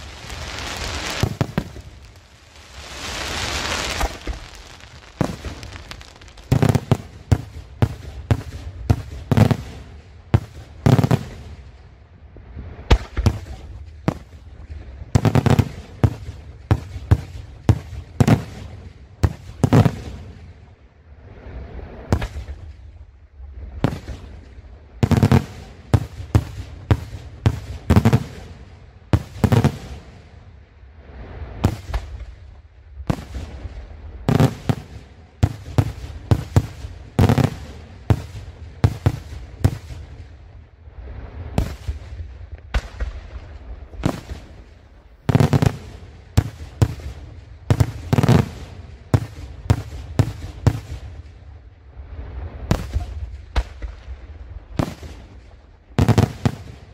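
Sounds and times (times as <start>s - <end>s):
fireworks sharp bangs: 0.0s - 11.6s, 12.9s - 14.4s, 25.0s - 30.2s, 31.6s - 32.4s, 33.0s - 40.2s, 41.5s - 51.3s, 54.8s - 55.4s, 56.0s - 56.9s
deep fireworks booms: 0.0s - 11.9s, 12.8s - 20.6s, 22.0s - 23.0s, 23.7s - 30.4s, 31.5s - 56.9s.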